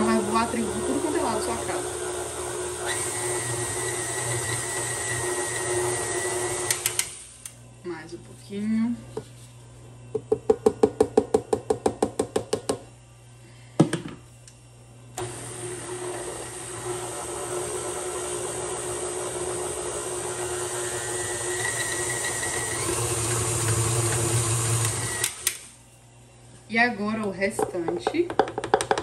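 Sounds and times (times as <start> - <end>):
stand mixer motor hum: 0.0 - 7.0, 15.2 - 25.4.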